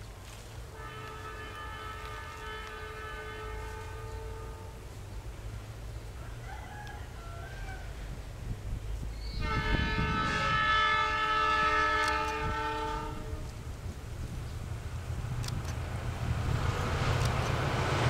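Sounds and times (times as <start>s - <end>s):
low rumble of wind: 0.0s - 18.0s
locomotive horn chord: 0.7s - 5.0s, 9.4s - 13.6s.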